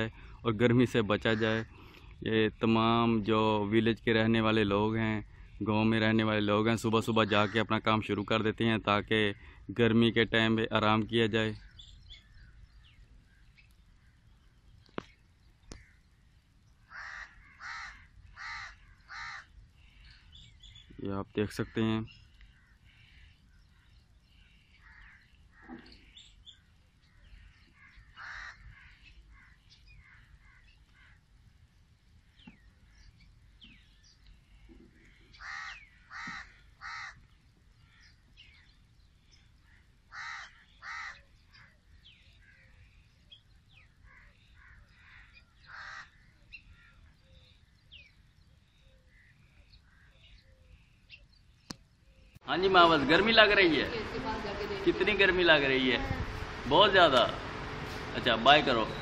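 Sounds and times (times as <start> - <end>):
small birds chirping: 0.0 - 59.0
crows cawing: 7.3 - 7.8, 9.4 - 9.6, 15.7 - 16.1, 16.8 - 20.8, 22.4 - 26.2, 27.0 - 31.3, 34.5 - 38.6, 39.6 - 43.0, 43.8 - 47.1, 49.1 - 50.4.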